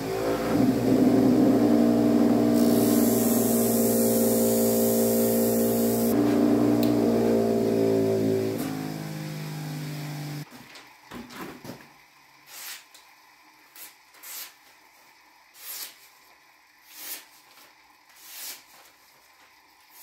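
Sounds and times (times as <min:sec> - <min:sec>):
sharpening wheel motor hum: 0:00.0 - 0:10.4
knife slicing paper: 0:18.2 - 0:18.9.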